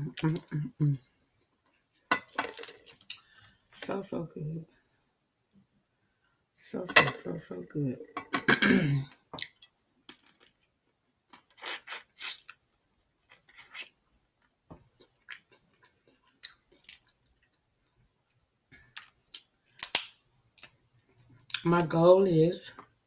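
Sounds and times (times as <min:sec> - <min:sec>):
crab shells cracking by hand: 0:09.5 - 0:10.6, 0:19.0 - 0:21.3
chewing crab meat: 0:13.3 - 0:21.6.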